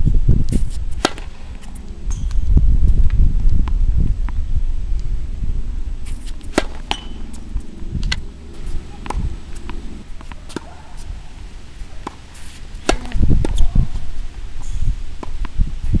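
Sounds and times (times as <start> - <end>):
low rumbling: 0.0 - 16.0
tennis ball hitting racket: 0.5 - 2.4, 6.0 - 14.1.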